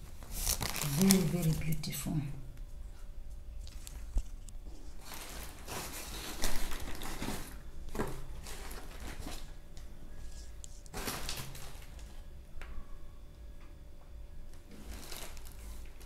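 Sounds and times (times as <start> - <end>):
packaging rustling and crinkling: 0.0 - 2.0, 3.6 - 12.3, 14.6 - 16.0.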